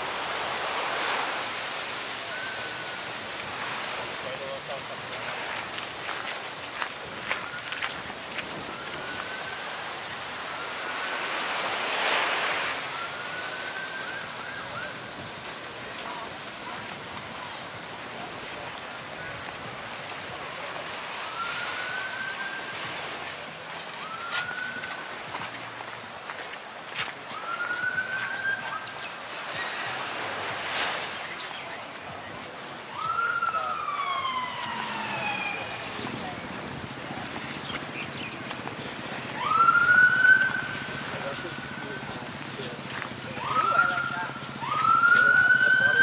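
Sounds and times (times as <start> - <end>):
outdoor background wash: 0.0 - 46.0
distant siren wailing: 0.2 - 25.5, 27.2 - 31.1, 32.8 - 37.7, 38.4 - 46.0
siren whoops: 8.6 - 15.2, 20.4 - 23.3, 24.0 - 25.1, 27.3 - 29.0, 32.9 - 36.1, 39.4 - 42.1, 43.2 - 46.0.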